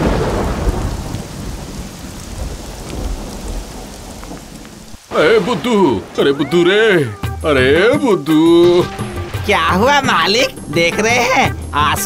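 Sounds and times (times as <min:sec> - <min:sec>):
thunder rumbling: 0:00.0 - 0:06.4, 0:08.6 - 0:12.0
heavy rain: 0:00.0 - 0:12.0
pitched musical sound: 0:08.3 - 0:12.0.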